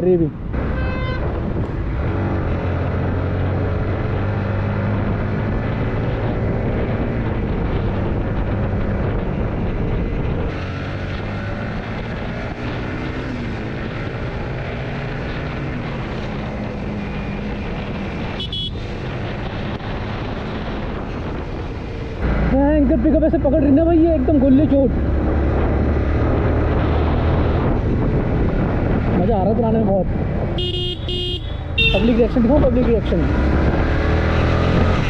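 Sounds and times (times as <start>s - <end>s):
road and wind noise: 0.0s - 35.0s
motorcycle engine running: 27.9s - 33.8s.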